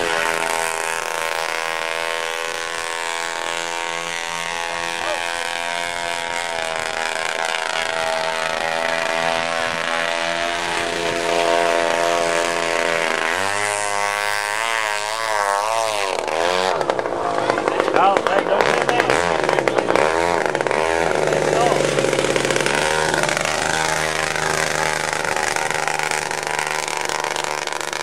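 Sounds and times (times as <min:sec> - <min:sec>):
model boat engine buzzing: 0:00.0 - 0:28.0.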